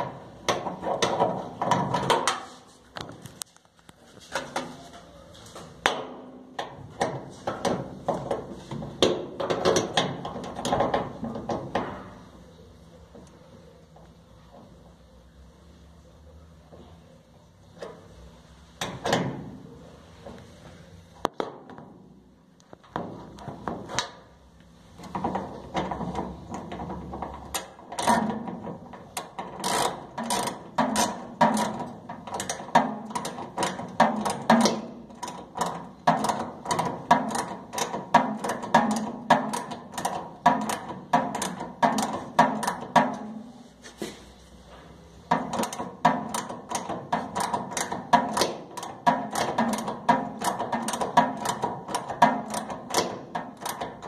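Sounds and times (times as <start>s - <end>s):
ratchet wrench clicking: 29.2s - 42.8s, 45.5s - 54.0s.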